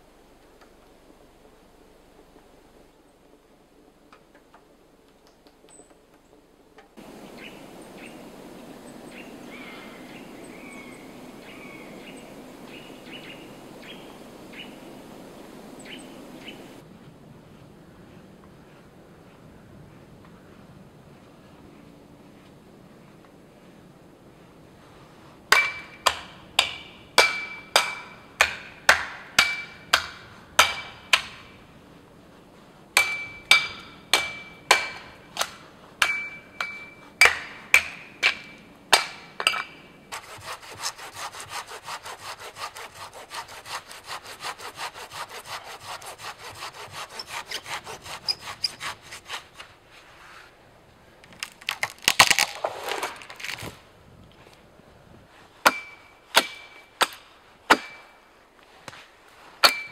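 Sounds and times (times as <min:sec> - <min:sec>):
hand saw cutting wood: 0:40.1 - 0:49.8
wood cracking: 0:51.2 - 0:53.9.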